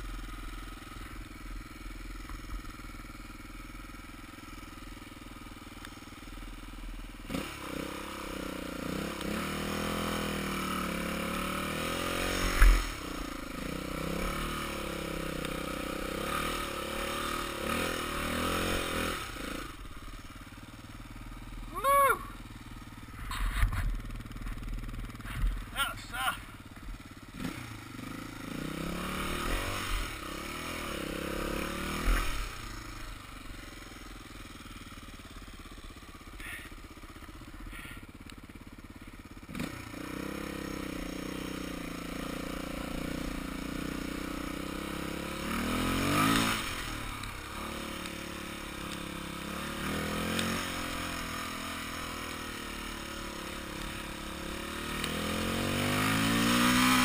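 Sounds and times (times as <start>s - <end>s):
dirt bike engine revving: 6.2s - 57.0s.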